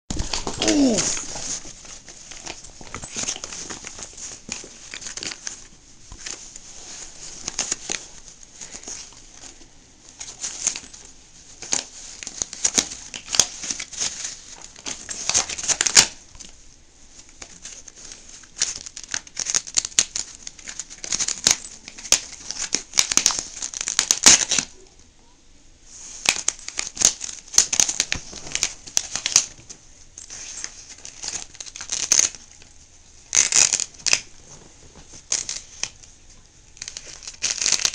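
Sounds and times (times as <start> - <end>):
dog chewing and ripping fabric toy: 0.1 - 9.6.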